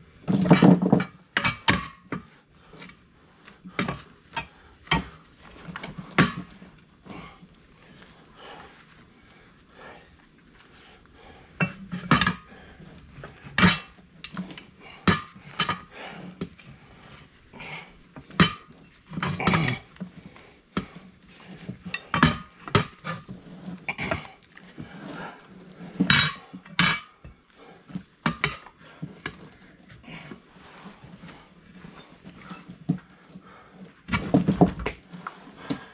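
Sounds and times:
tire irons clanking on steel rim: 0:00.3 - 0:02.3, 0:03.7 - 0:07.3, 0:11.6 - 0:16.8, 0:17.6 - 0:19.9, 0:20.7 - 0:35.9.

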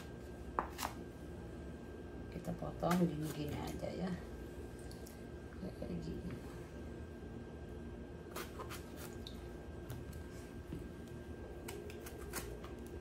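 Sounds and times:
knife cutting eggplant: 0:08.2 - 0:10.2, 0:11.5 - 0:13.0.

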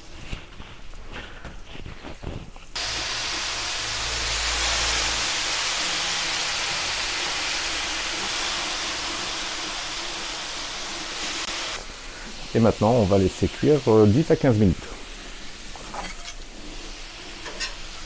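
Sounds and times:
vinegar sizzling on hot griddle: 0:02.3 - 0:18.0.

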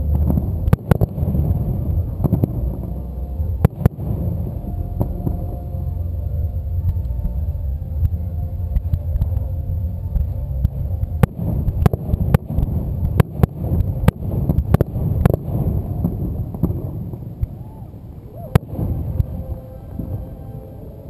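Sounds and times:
low rumble: 0:00.0 - 0:21.0
fireworks bangs: 0:10.2 - 0:17.8.

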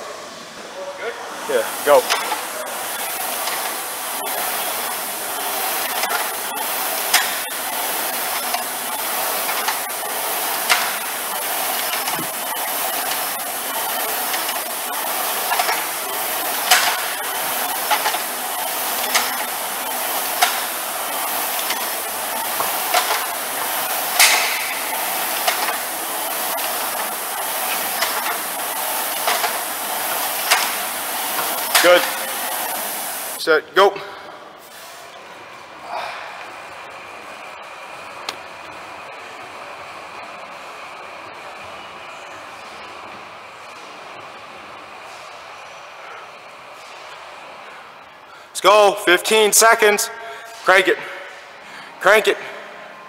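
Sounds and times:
rowing machine fan whooshing: 0:00.0 - 0:33.5
rowing machine clacking: 0:01.5 - 0:33.4.

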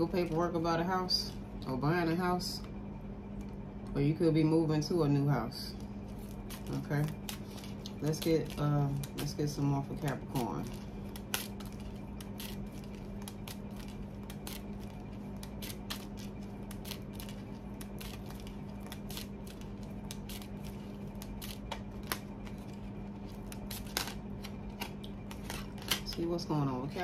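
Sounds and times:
steady low hum: 0:00.0 - 0:27.0
cards being shuffled: 0:06.1 - 0:26.3.

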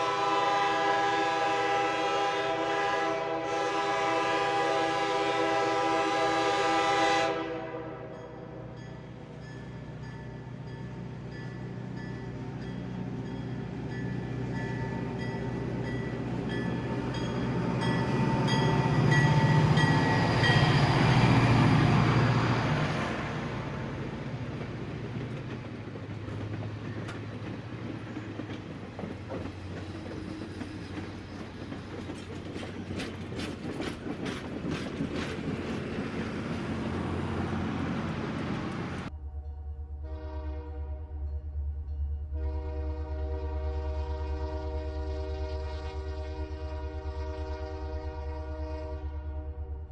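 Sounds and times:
wheels clicking over track joints: 0:24.5 - 0:36.6.

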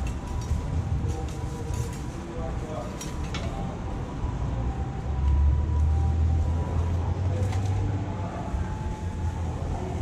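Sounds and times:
passing vehicle rumble: 0:00.0 - 0:10.0.

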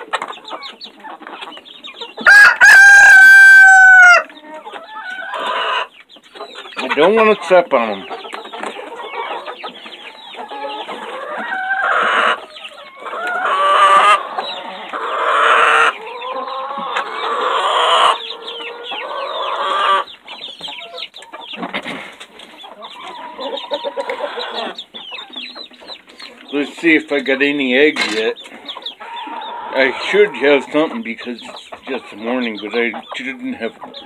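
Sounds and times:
chickens clucking and squawking: 0:00.0 - 0:34.0
drawn-out rooster calls: 0:02.2 - 0:04.3, 0:10.6 - 0:12.4.

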